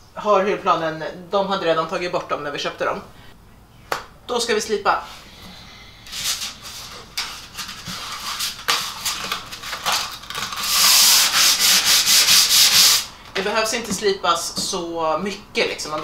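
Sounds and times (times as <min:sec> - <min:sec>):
sandpaper rubbing by hand: 0:06.1 - 0:13.1.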